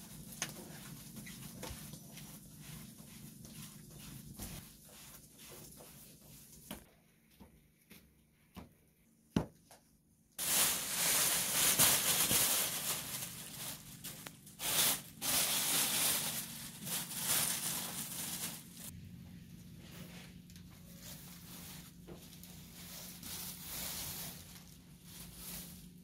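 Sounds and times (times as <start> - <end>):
plastic film crinkling: 10.4 - 18.9.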